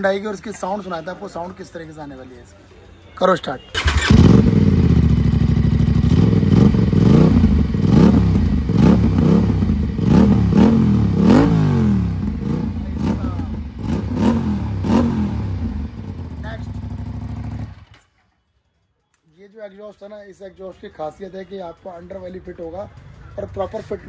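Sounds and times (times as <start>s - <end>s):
engine throttle blips: 3.8s - 17.9s
motorcycle engine idling: 3.8s - 17.9s.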